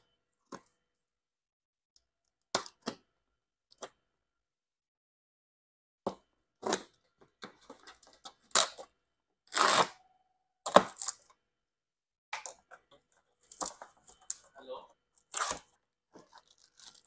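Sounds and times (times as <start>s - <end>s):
cardboard tearing: 9.5s - 10.0s, 15.3s - 15.7s.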